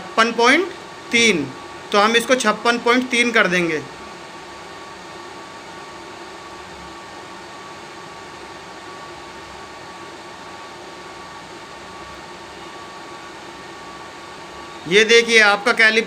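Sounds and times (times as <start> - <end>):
cooling fans whirring: 0.0 - 16.0
thin steady whine: 0.0 - 16.0.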